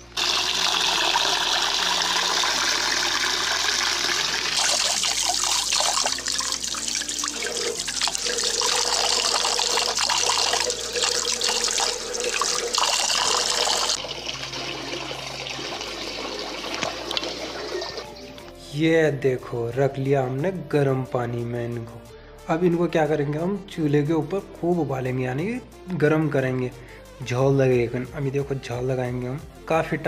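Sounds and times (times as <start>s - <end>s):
tap water splashing into metal pot: 16.6s - 18.0s.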